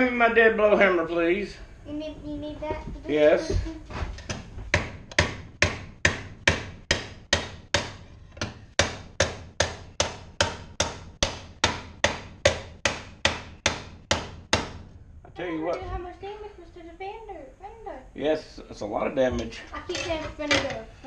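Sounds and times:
hammer beating metal: 4.3 - 14.9.

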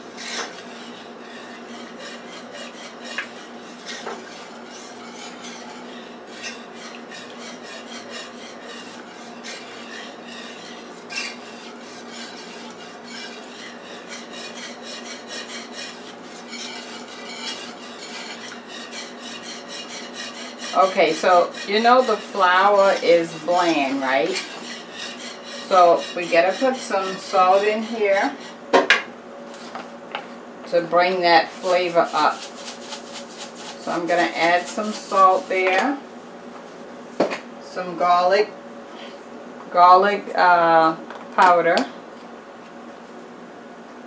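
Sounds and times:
whisk scraping against pan: 0.0 - 28.8, 30.7 - 36.1.

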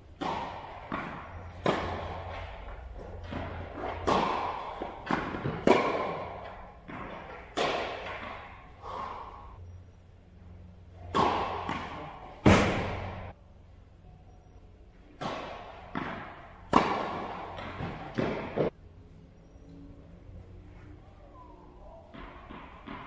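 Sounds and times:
tennis ball hits echoing: 0.1 - 9.0, 11.0 - 13.4, 15.2 - 18.8, 22.0 - 23.0.

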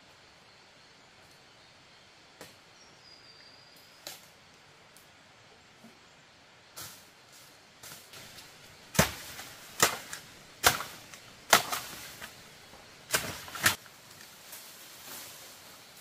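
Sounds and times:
hand tool striking bamboo: 7.8 - 13.8.

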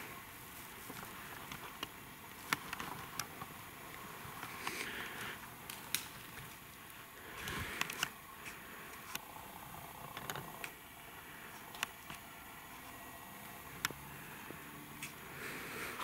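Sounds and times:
rustling in dry leaves: 0.0 - 9.2
light clicks in leaf litter: 4.5 - 9.2.

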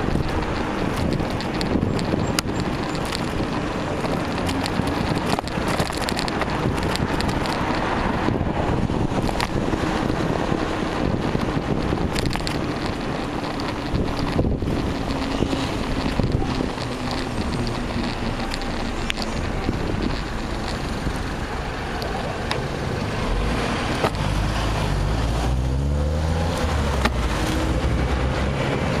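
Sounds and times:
sharp clicks: 0.0 - 8.0, 11.2 - 21.4
car traffic: 0.0 - 29.0
wind rushing over microphone: 0.0 - 29.0.

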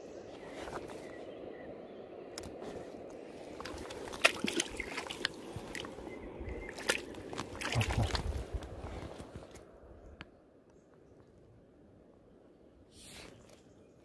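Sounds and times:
river water running: 0.0 - 9.8
water splashing: 3.4 - 8.7.

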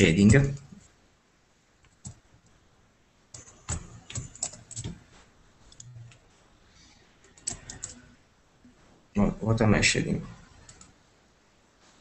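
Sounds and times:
keyboard keys clicking: 3.3 - 6.2, 7.2 - 8.0.

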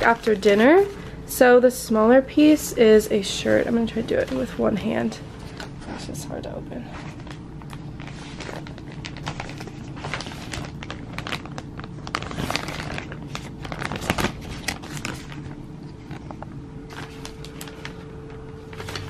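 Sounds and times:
plastic bag crinkling: 0.0 - 1.2, 6.9 - 19.0.

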